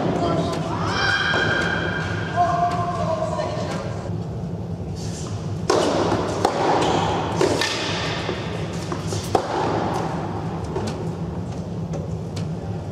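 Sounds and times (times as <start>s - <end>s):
steady low hum: 0.0s - 12.9s
tennis balls struck and bouncing: 5.6s - 11.1s.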